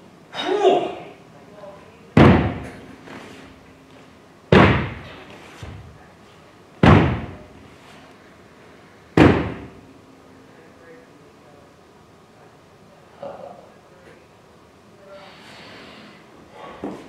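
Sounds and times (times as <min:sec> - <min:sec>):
loud sharp thumps with echo: 0:02.2 - 0:02.8, 0:04.5 - 0:05.2, 0:06.8 - 0:07.5, 0:09.2 - 0:09.8.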